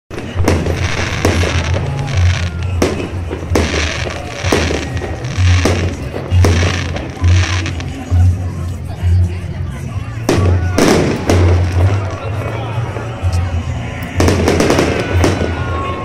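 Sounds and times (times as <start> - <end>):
firework shells bursting with bangs: 0.1 - 7.9, 14.2 - 16.0
crackle of firework stars: 0.1 - 8.1.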